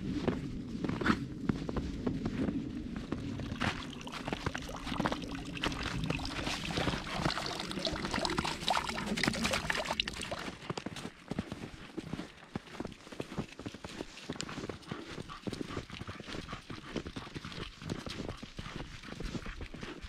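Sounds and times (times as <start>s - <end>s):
footsteps crunching in snow: 0.0s - 7.0s, 10.2s - 16.1s
water splashing into trough: 3.4s - 10.5s.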